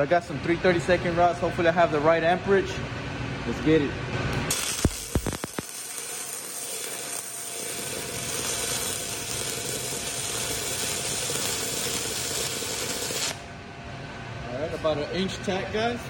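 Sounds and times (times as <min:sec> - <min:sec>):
welding arc crackling: 0:04.3 - 0:13.5.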